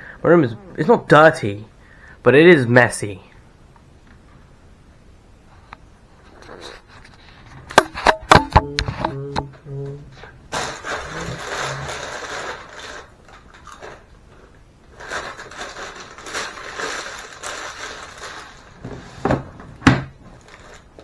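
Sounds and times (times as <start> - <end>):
plastic bag crinkling: 10.5 - 14.2, 14.8 - 19.2, 20.3 - 21.0.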